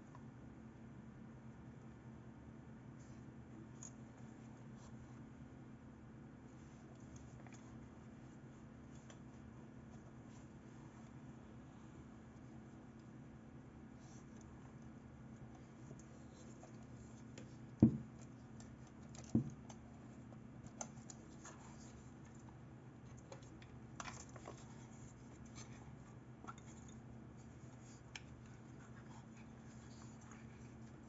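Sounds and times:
dull thumps: 17.8s - 18.2s.

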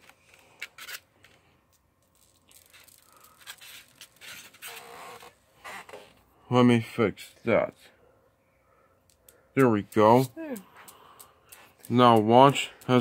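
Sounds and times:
packaging scraping and rubbing: 0.0s - 1.4s, 2.0s - 6.2s.

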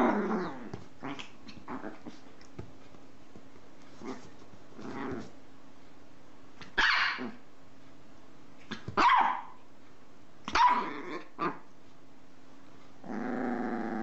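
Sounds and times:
small dog barking: 6.7s - 7.4s, 8.7s - 9.6s, 10.5s - 11.6s.

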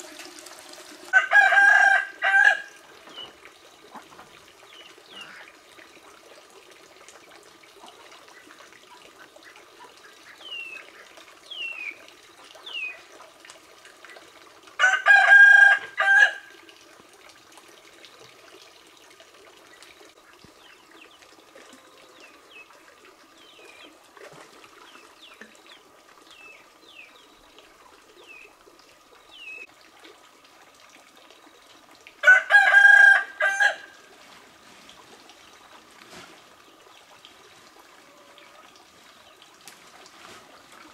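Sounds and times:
rooster crowing: 1.1s - 2.7s, 14.8s - 16.4s, 32.2s - 34.0s.

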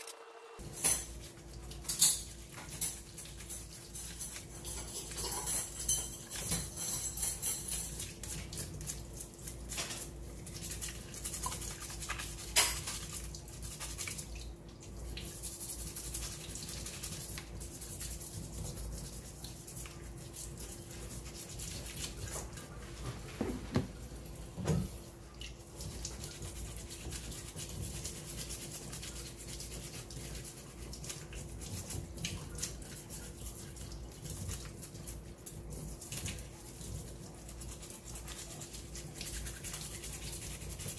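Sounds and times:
running tap water: 0.6s - 40.9s
brush scrubbing shell: 15.3s - 22.5s
low knocks against sink: 23.4s - 24.0s.

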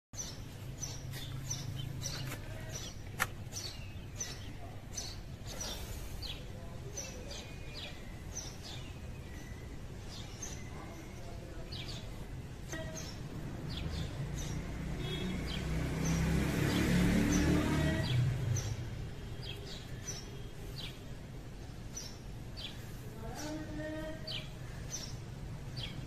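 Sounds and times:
small birds chirping: 0.2s - 26.0s.

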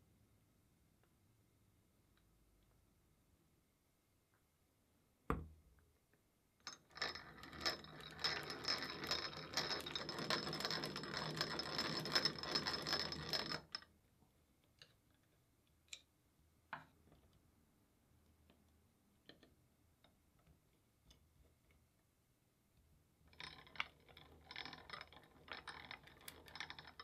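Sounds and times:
hand drill gears clicking rattle: 6.9s - 13.8s, 23.4s - 27.0s.

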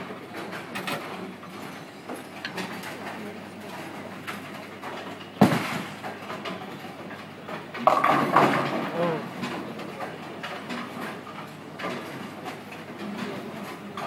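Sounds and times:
bowling hall background noise: 0.0s - 14.0s
bowling ball thud on wooden lane: 7.8s - 8.9s
bowling ball rolling: 7.8s - 9.4s.

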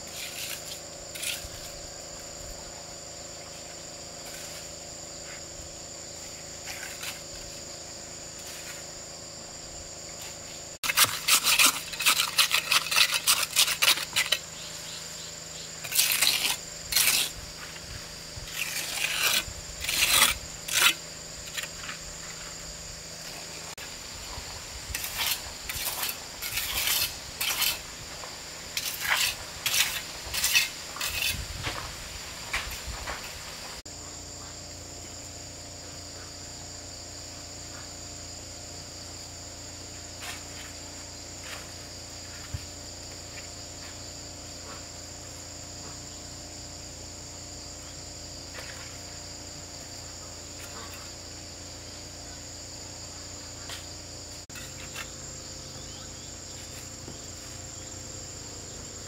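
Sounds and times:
insect chorus drone: 0.0s - 59.0s
sharp clinks and scrapes: 10.8s - 14.7s, 15.8s - 17.4s, 24.9s - 27.9s, 28.7s - 31.4s, 54.4s - 55.2s.

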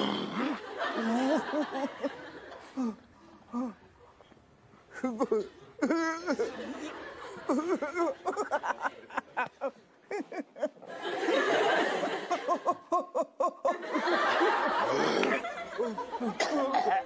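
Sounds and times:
studio audience laughing: 0.5s - 2.8s, 6.3s - 16.4s.

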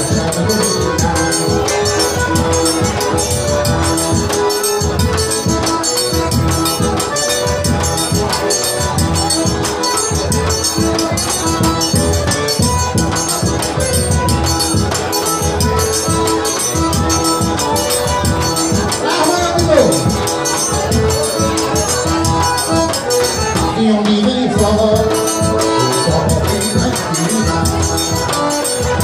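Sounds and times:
accordion melody: 0.0s - 29.0s
quick triangle rhythm: 0.0s - 29.0s
bass drum beat: 23.5s - 28.3s.

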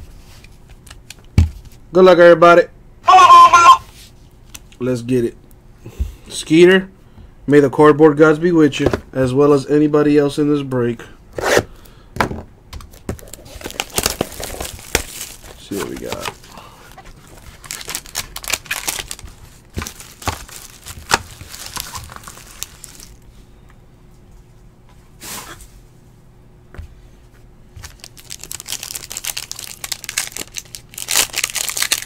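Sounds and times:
foil pack tearing: 12.9s - 16.6s, 17.3s - 23.2s, 27.8s - 32.0s
packaging crinkling: 12.9s - 23.2s, 27.8s - 32.0s.

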